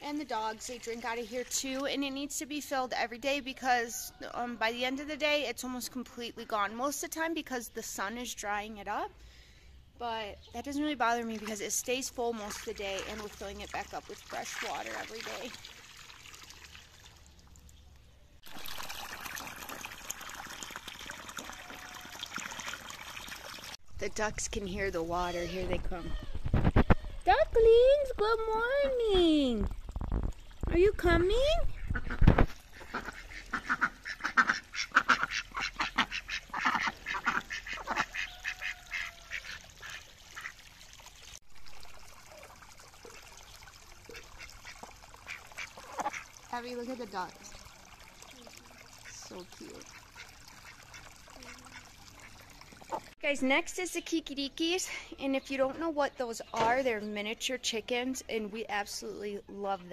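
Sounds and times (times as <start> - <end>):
water splashing into pond: 10.8 - 27.0, 27.7 - 53.6
ducks quacking: 31.7 - 40.6, 44.1 - 46.4, 48.9 - 53.1.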